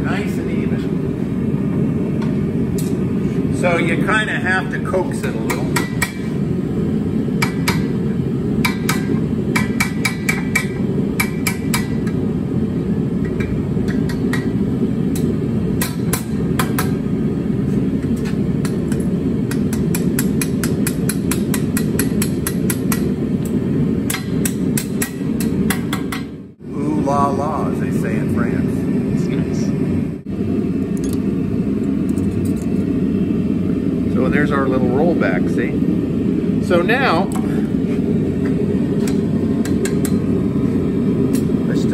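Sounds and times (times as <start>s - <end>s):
hammer striking steel on anvil: 5.2s - 6.3s, 7.4s - 8.0s, 8.6s - 12.2s, 13.2s - 17.0s, 18.2s - 23.2s, 24.1s - 26.4s, 39.0s - 40.3s.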